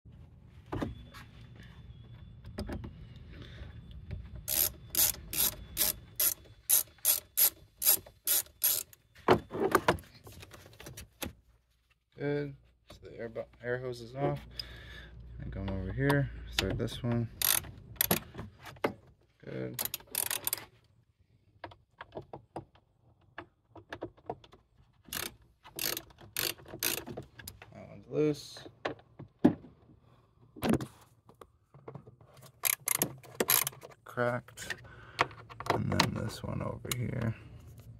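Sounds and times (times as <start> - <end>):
hand ratchet clicking: 4.5 - 9.0, 17.4 - 18.2, 19.8 - 20.6, 25.1 - 27.1, 32.6 - 33.8.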